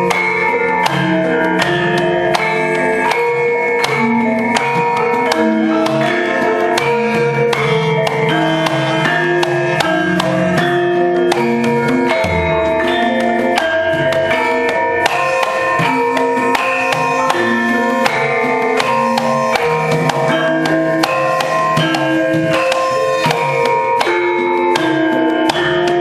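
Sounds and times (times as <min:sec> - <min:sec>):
hand drum strokes: 0:00.0 - 0:26.0
tuned metal percussion: 0:00.0 - 0:26.0.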